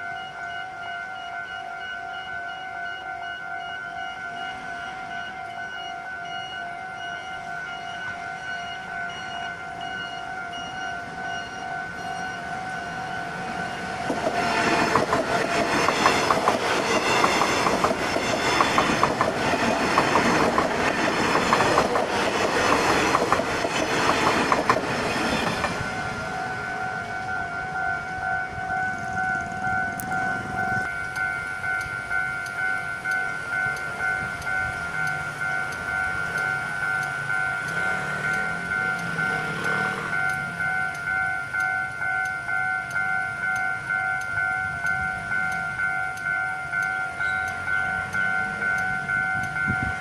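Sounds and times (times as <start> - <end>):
level crossing warning bell: 0.0 - 50.0
train wheels clattering: 13.6 - 27.3.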